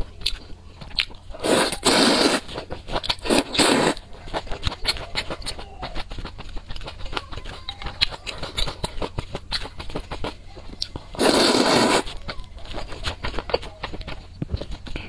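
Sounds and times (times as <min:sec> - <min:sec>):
wet chewing clicks: 0:00.0 - 0:15.0
noodle slurp: 0:01.3 - 0:07.3, 0:08.2 - 0:12.2.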